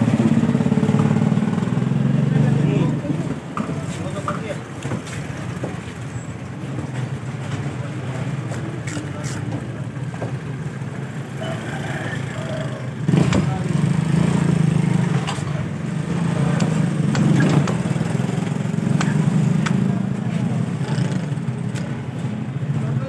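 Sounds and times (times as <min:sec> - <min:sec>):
market din: 0:00.0 - 0:23.0.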